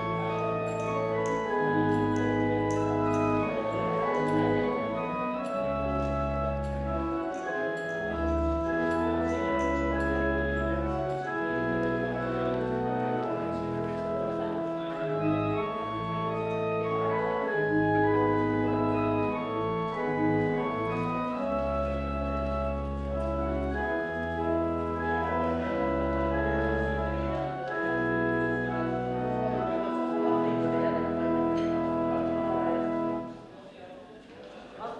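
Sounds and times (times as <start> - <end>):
deep organ pedal bass notes: 0.0 - 33.3
church organ sustained chords: 0.0 - 33.5.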